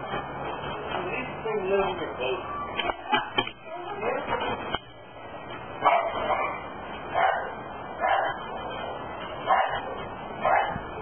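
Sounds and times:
dog barking: 0:05.8 - 0:08.4, 0:09.5 - 0:10.8.

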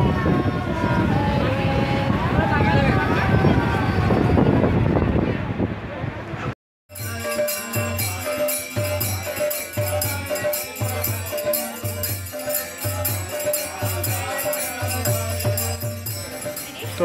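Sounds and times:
jingling shaker percussion: 0:06.9 - 0:17.0.

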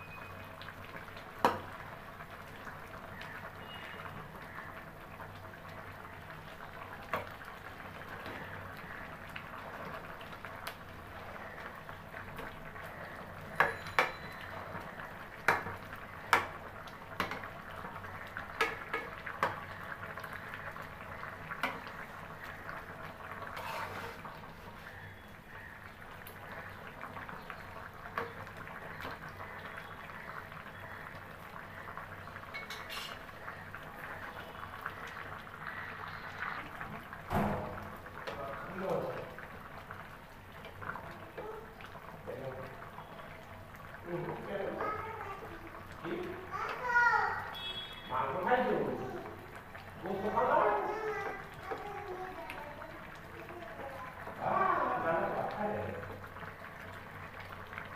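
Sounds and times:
curry simmering in pan: 0:00.0 - 0:57.9
metal spatula scraping pan: 0:23.5 - 0:24.3, 0:32.6 - 0:33.2.

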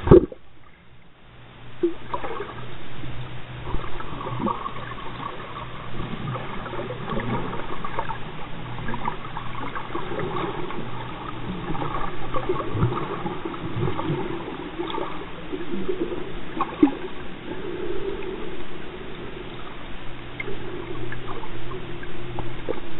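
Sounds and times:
muffled water gurgling and sloshing: 0:00.0 - 0:22.9.

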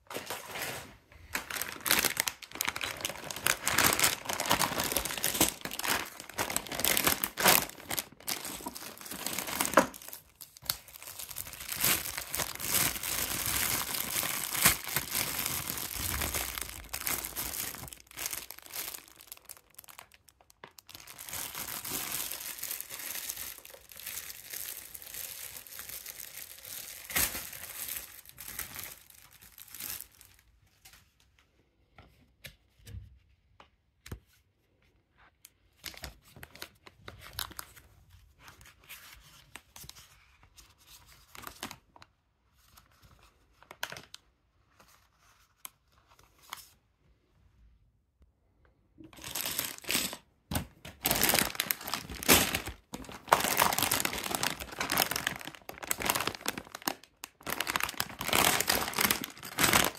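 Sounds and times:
plastic bags crinkling: 0:00.0 - 0:30.5, 0:49.1 - 0:59.9.

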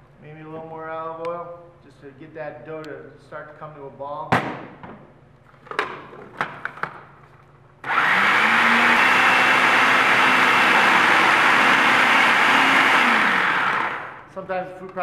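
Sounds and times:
food processor motor running: 0:07.8 - 0:14.3.

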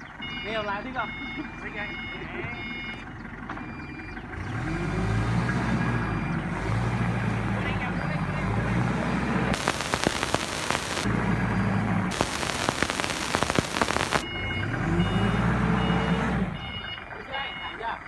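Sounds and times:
forklift engine running: 0:01.9 - 0:17.7
loud crackling noise: 0:09.5 - 0:14.2
warning beeper beeping: 0:09.6 - 0:17.8.

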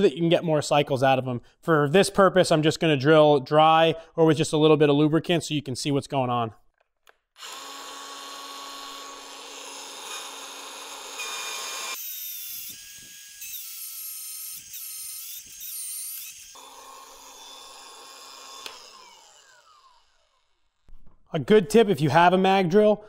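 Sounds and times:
cutter boring through steel: 0:07.4 - 0:20.8
drill motor whining: 0:07.4 - 0:20.8.

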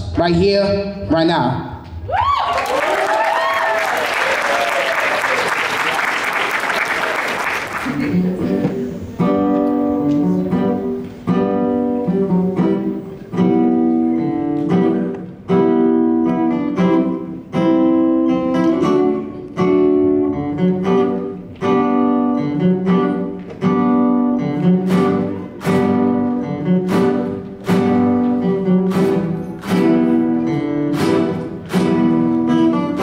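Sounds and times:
acoustic guitars strumming chords: 0:06.8 - 0:33.0.

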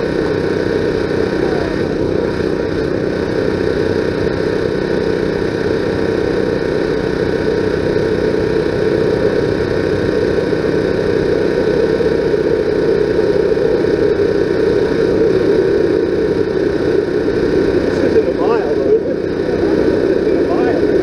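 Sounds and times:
loud engine drone: 0:00.0 - 0:21.0.

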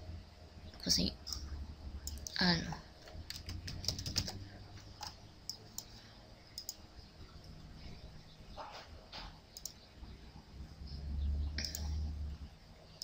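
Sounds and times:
faint low hum: 0:00.0 - 0:13.0
computer mouse clicking: 0:02.0 - 0:02.4, 0:03.1 - 0:05.9, 0:06.6 - 0:06.8, 0:09.6 - 0:09.8, 0:11.6 - 0:12.0.

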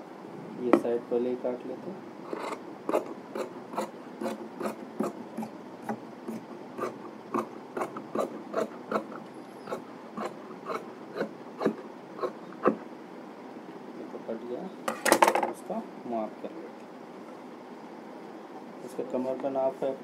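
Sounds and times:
shears snipping fabric: 0:02.3 - 0:12.8.

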